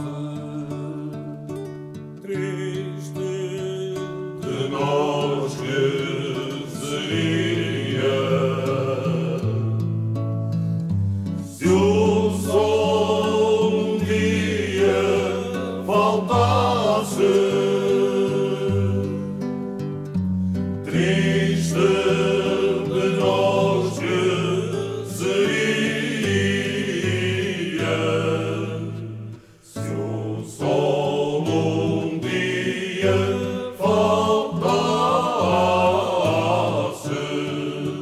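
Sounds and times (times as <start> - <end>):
voices singing a melody: 0.0 - 10.0, 11.4 - 20.0, 20.8 - 38.0
steady musical accompaniment: 11.1 - 38.0.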